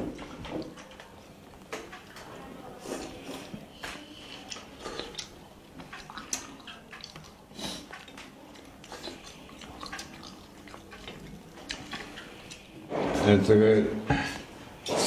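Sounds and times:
faint wet sounds: 0:00.0 - 0:13.5.

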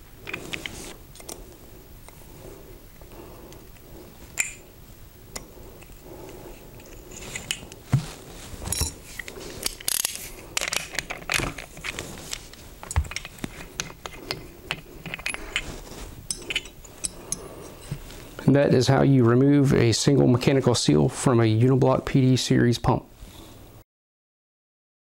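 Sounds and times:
metal parts clicking and clinking: 0:08.6 - 0:18.0.

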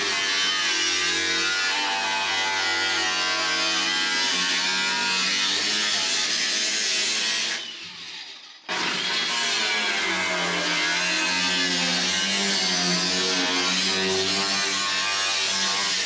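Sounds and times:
angle grinder cutting steel: 0:00.0 - 0:16.0.

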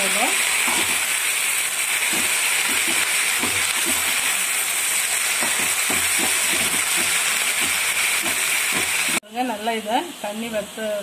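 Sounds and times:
leaves sizzling in hot oil: 0:00.0 - 0:11.0
spatula scraping pan: 0:00.6 - 0:01.1, 0:02.0 - 0:04.4, 0:05.3 - 0:09.2.

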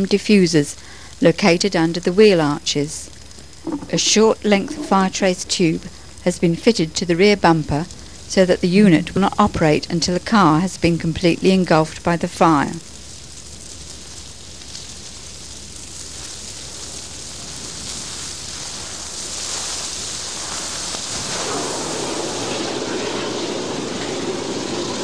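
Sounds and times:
fire suppression system hissing: 0:00.0 - 0:25.0
car fire rushing: 0:12.8 - 0:25.0.

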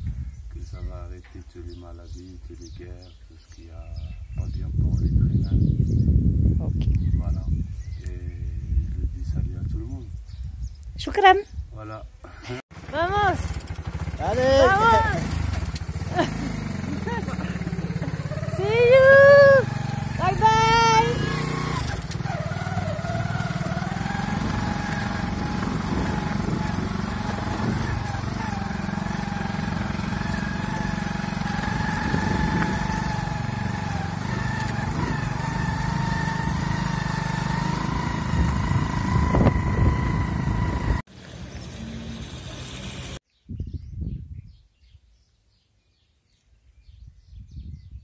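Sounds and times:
wind rumble on microphone: 0:00.0 - 0:03.1, 0:03.7 - 0:12.2, 0:22.8 - 0:28.8, 0:31.5 - 0:35.5, 0:38.0 - 0:41.0, 0:43.3 - 0:45.2, 0:46.8 - 0:48.0
small motorbike engine running: 0:12.7 - 0:43.2.

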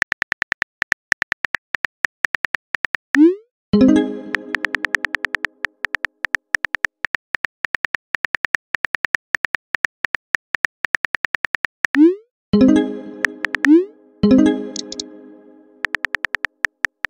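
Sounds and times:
incoming message chime: 0:03.8 - 0:05.4, 0:12.6 - 0:15.9
phone keyboard typing clicks: 0:04.3 - 0:12.0, 0:13.2 - 0:13.8, 0:14.7 - 0:15.0, 0:15.8 - 0:17.0.

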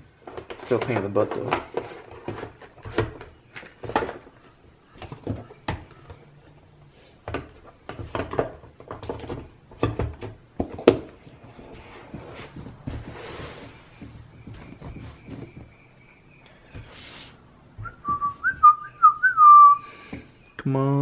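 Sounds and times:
hollow thumps: 0:07.2 - 0:17.0, 0:17.7 - 0:19.4.

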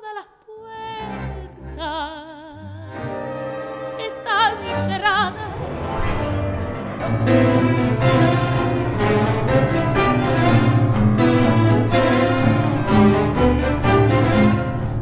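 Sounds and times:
woman singing with vibrato: 0:00.0 - 0:03.0, 0:03.8 - 0:06.0
orchestra playing sustained chords: 0:02.9 - 0:15.0.

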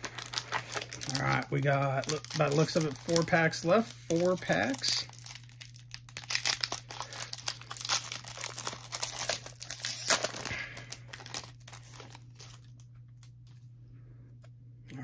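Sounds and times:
foil wrapper crinkling and tearing: 0:00.0 - 0:13.3.

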